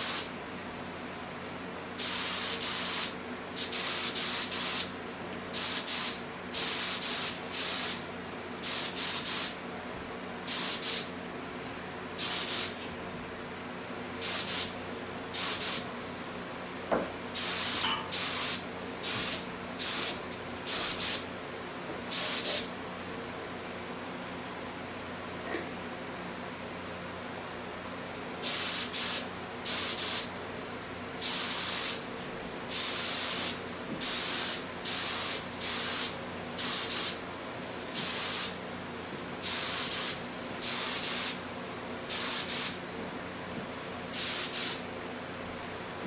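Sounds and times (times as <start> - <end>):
paint spray gun hissing bursts: 0.0 - 0.3, 2.0 - 5.0, 5.6 - 8.0, 8.6 - 9.6, 12.2 - 12.8, 14.2 - 14.8, 17.4 - 21.2, 28.4 - 30.3, 31.2 - 32.0, 32.7 - 37.2, 37.8 - 38.6, 39.4 - 41.4, 42.1 - 42.8, 44.1 - 44.8.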